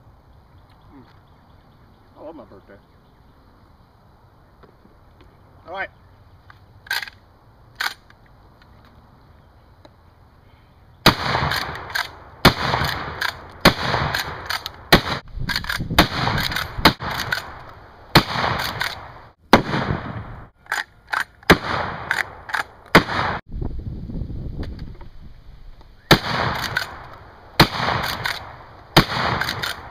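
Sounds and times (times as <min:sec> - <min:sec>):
shotgun shots with ringing tail: 0:11.0 - 0:15.2, 0:16.0 - 0:20.5, 0:21.5 - 0:23.4, 0:26.1 - 0:27.0, 0:27.6 - 0:29.9.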